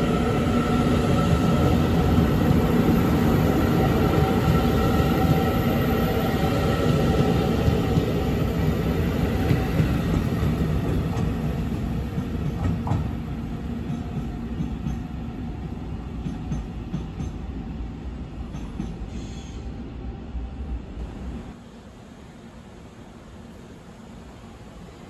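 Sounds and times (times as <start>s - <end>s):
train wheel rumble: 0.0s - 19.7s.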